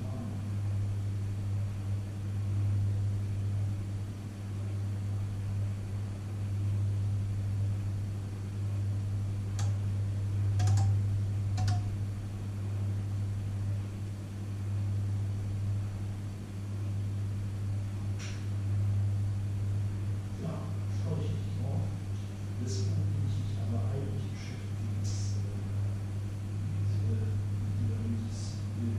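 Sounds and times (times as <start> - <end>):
microwave oven humming: 0.0 - 28.9
light clicks: 9.6 - 9.8.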